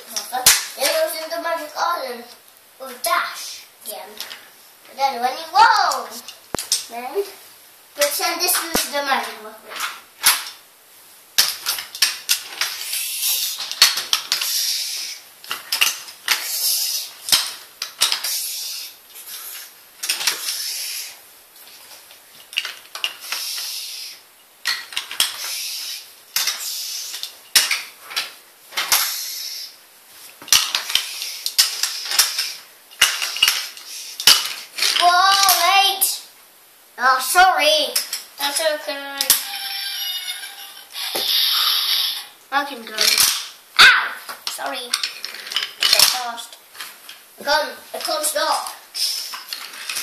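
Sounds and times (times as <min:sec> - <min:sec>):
toy trains rattling on wooden track: 0:08.0 - 0:10.6, 0:11.4 - 0:21.1, 0:22.4 - 0:29.7, 0:30.5 - 0:36.1, 0:37.4 - 0:43.5, 0:44.4 - 0:50.0
toy train pieces clicking: 0:11.4 - 0:18.9, 0:19.6 - 0:21.1, 0:22.5 - 0:29.7, 0:30.5 - 0:35.8, 0:37.9 - 0:43.5, 0:44.4 - 0:46.6, 0:48.0 - 0:50.0.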